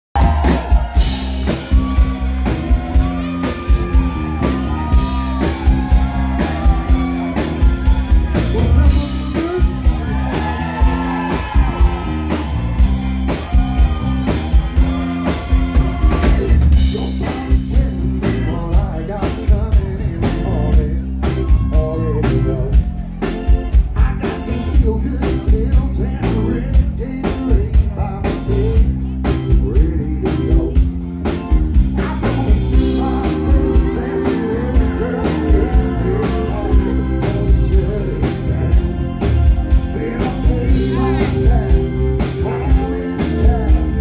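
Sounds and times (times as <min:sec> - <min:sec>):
bass and electric guitars: 0:00.1 - 0:44.0
drum kit beat: 0:00.1 - 0:44.0
wavering lead melody: 0:30.2 - 0:44.0.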